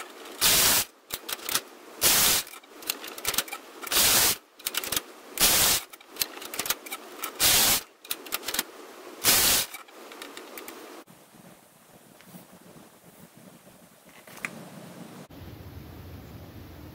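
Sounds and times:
knitting machine carriage clattering: 0:00.0 - 0:11.0.

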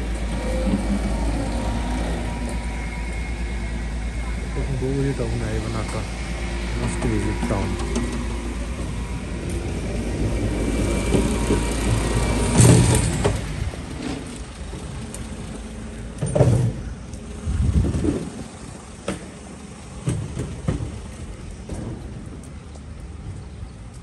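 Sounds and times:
car engine rumble: 0:00.0 - 0:24.0.

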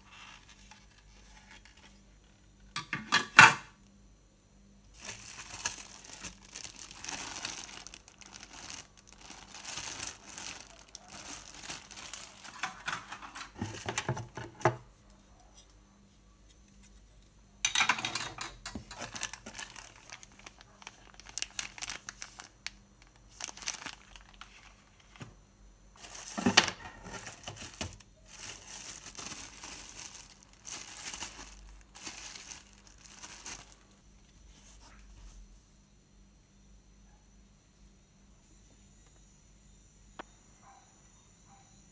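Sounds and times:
plastic bags crinkling: 0:04.9 - 0:14.6, 0:17.7 - 0:25.3, 0:26.0 - 0:34.0.

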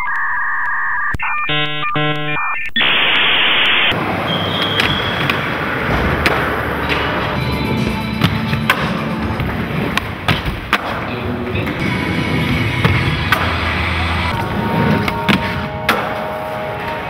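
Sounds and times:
electronic beeps: 0:00.0 - 0:05.3
harsh static: 0:00.0 - 0:06.7
skateboard clicks and knocks: 0:03.9 - 0:17.0
skateboard wheels rolling on concrete: 0:03.9 - 0:17.0.

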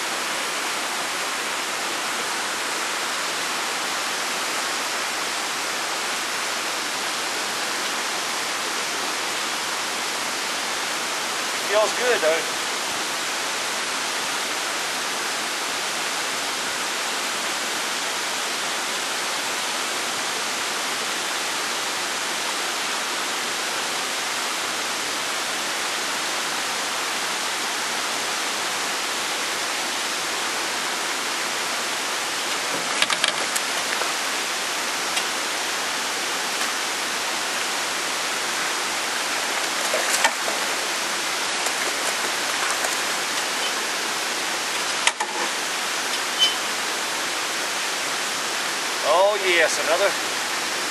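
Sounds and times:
steady rushing noise: 0:30.2 - 0:46.2.

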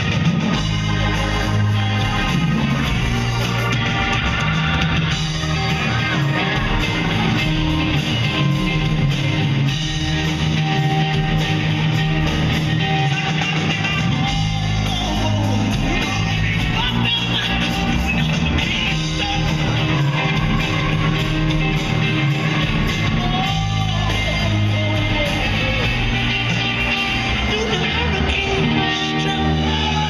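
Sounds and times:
bass guitar: 0:00.0 - 0:30.0
drum kit: 0:00.0 - 0:30.0
electric guitar: 0:00.0 - 0:30.0
woman singing: 0:22.6 - 0:30.0.

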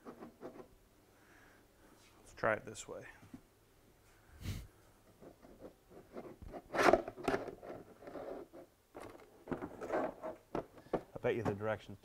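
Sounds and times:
plastic box scraping and knocking: 0:05.2 - 0:11.8.

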